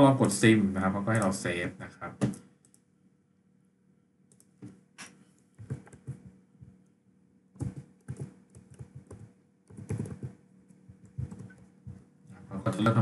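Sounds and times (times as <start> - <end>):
computer keyboard typing: 1.1 - 1.4, 5.6 - 6.4, 7.6 - 12.0.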